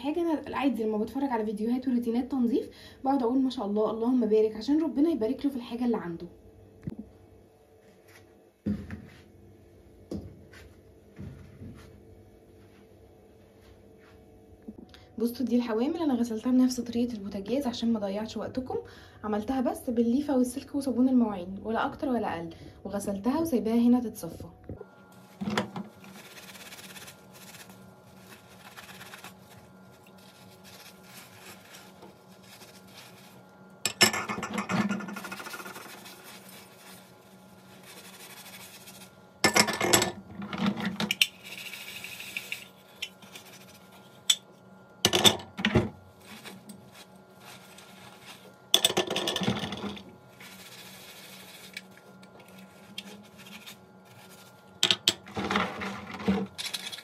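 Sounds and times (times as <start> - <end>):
faint steady hum: 0.0 - 57.0
wet scrubbing and scraping: 25.3 - 33.6, 34.9 - 39.2, 49.9 - 57.0.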